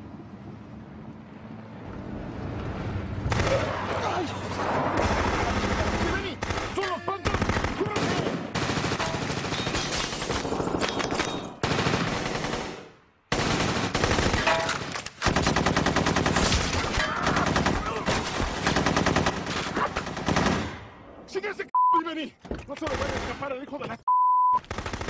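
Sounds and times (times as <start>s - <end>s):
rapid gunfire: 3.3s - 3.9s, 5.0s - 20.8s, 22.9s - 23.5s, 24.6s - 25.0s.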